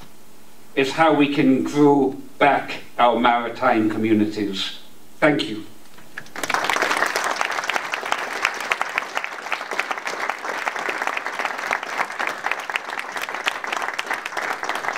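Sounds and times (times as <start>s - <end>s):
audience applauding: 6.1s - 14.9s.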